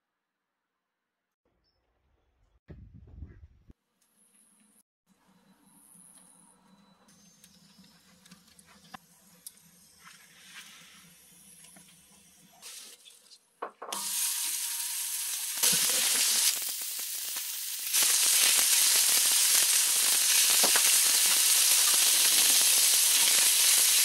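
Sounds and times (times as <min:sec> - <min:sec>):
meat sizzling on griddle: 0:14.0 - 0:24.0
firewood crackling: 0:14.1 - 0:24.0.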